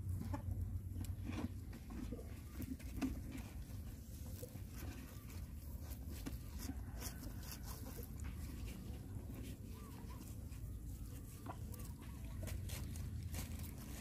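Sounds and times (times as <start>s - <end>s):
low steady rumble: 0.0s - 14.0s
puppies chewing: 0.0s - 14.0s.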